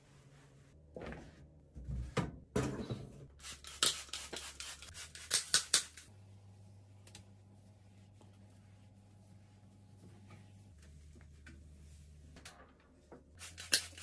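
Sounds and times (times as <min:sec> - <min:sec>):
spray bottle hissing sprays: 0:03.4 - 0:06.1, 0:13.4 - 0:14.0
cloth rubbing on surface: 0:07.6 - 0:10.8.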